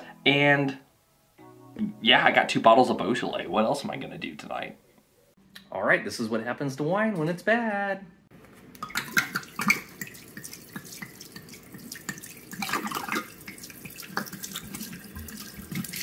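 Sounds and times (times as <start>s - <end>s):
wine pouring down sink drain: 8.8s - 16.0s.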